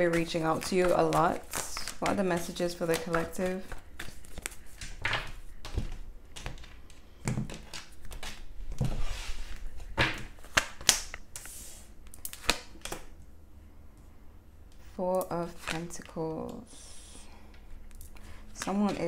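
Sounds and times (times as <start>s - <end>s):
cards being shuffled: 0.0s - 13.1s.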